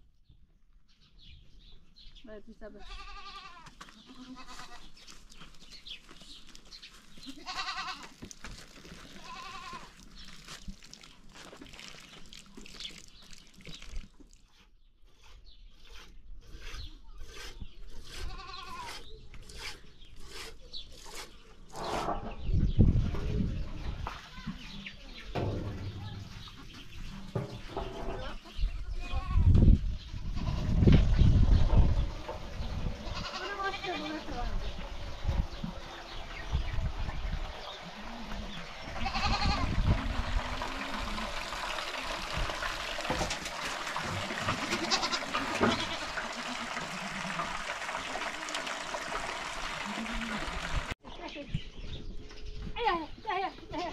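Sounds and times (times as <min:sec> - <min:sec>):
sheep bleating: 0:07.3 - 0:08.2, 0:09.2 - 0:09.9, 0:39.0 - 0:39.8, 0:44.6 - 0:46.6.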